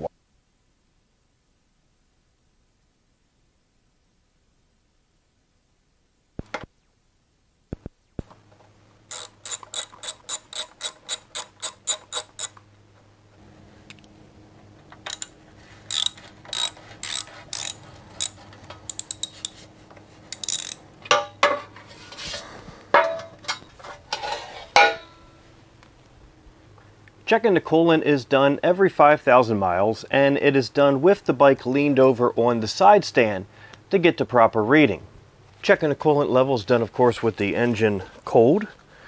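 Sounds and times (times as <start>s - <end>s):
socket ratchet clicking: 9.1s - 12.6s, 15.0s - 19.6s, 20.3s - 20.8s
metal plate clattering and scraping: 21.1s - 25.3s.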